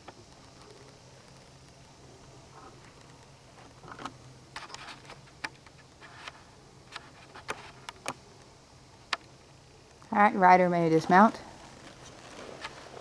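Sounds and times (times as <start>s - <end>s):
low steady hum: 0.0s - 13.0s.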